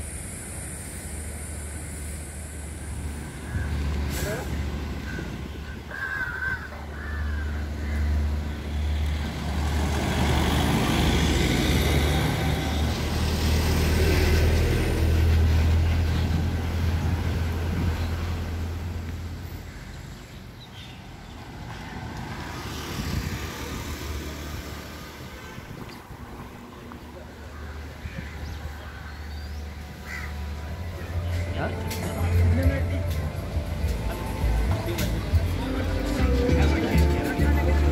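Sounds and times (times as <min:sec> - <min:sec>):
large vehicle engine humming: 0:00.0 - 0:37.9
outdoor traffic noise: 0:00.0 - 0:37.9
road noise: 0:00.0 - 0:37.9.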